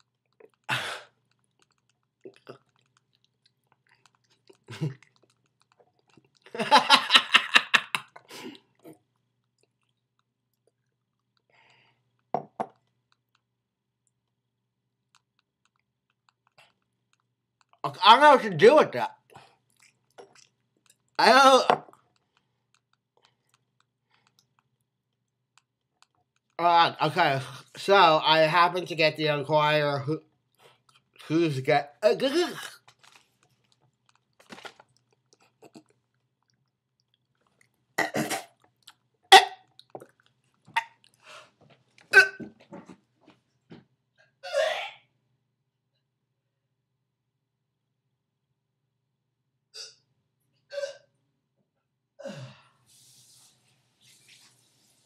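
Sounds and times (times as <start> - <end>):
man retching: 0.6 - 1.2, 38.0 - 38.6, 39.3 - 40.0, 42.1 - 42.5, 44.4 - 45.0
man spitting into a jar: 38.0 - 38.6.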